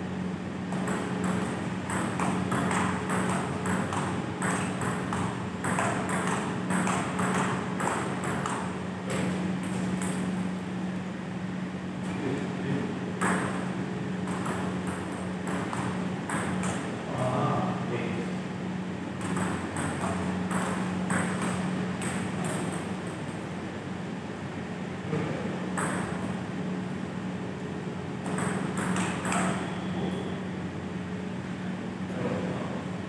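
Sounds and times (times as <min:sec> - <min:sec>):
steady low hum: 0:00.0 - 0:33.0
table tennis ball clicking: 0:00.7 - 0:08.7, 0:19.2 - 0:22.9, 0:25.8 - 0:26.2, 0:28.2 - 0:29.6.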